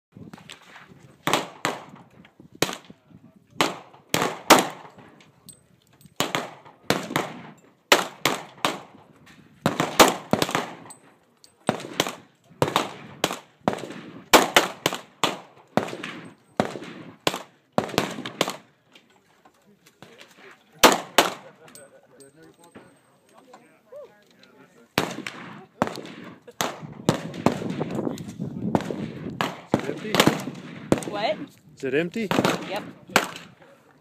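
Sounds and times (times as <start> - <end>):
pistol shots: 1.2 - 2.0, 2.6 - 3.0, 3.6 - 5.1, 6.2 - 11.0, 11.6 - 18.7, 20.8 - 21.5, 25.0 - 28.0, 28.7 - 31.4, 32.3 - 33.6.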